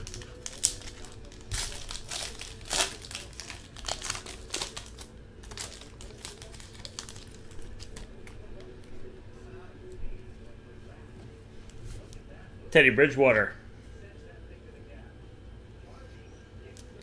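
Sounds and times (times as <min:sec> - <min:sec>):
foil wrapper crinkling and tearing: 0:00.0 - 0:08.6
cards rustling and clicking: 0:00.0 - 0:08.9.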